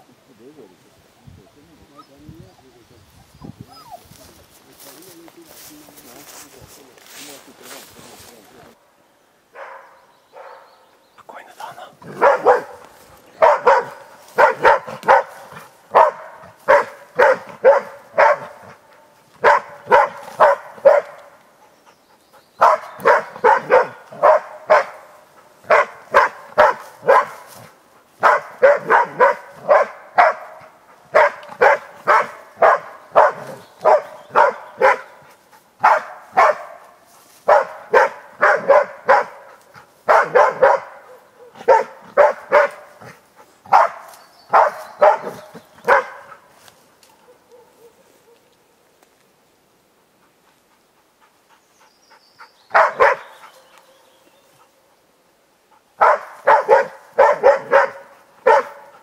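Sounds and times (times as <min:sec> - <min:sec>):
dog barking sharply: 0:09.6 - 0:10.7, 0:12.0 - 0:12.8, 0:13.4 - 0:18.8, 0:19.4 - 0:21.3, 0:22.6 - 0:35.2, 0:35.8 - 0:36.8, 0:37.5 - 0:39.5, 0:40.1 - 0:42.9, 0:43.7 - 0:46.4, 0:52.7 - 0:53.3, 0:56.0 - 0:59.0.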